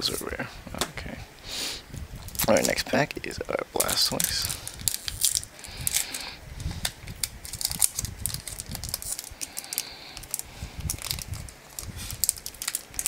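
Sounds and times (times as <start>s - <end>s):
foil wrapper crinkling: 2.2s - 2.8s, 3.8s - 13.0s
foil wrapper tearing rips: 3.8s - 13.0s.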